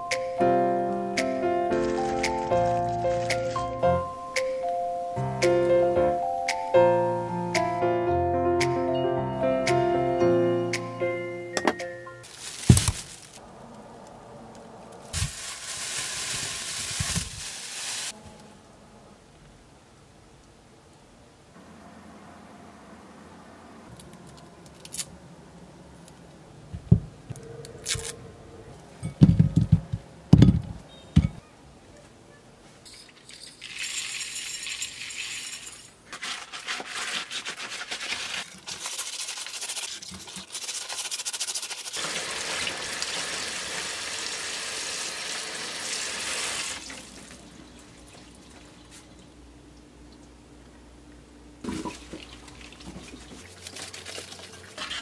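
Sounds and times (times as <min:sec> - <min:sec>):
salt rubbing on lemon peel: 0:36.1 - 0:42.0.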